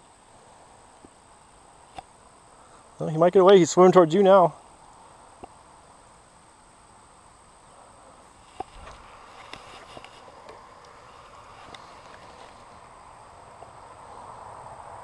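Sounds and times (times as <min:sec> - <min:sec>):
crickets and insects chirring: 0:00.0 - 0:15.0
rustles in grass: 0:07.6 - 0:15.0.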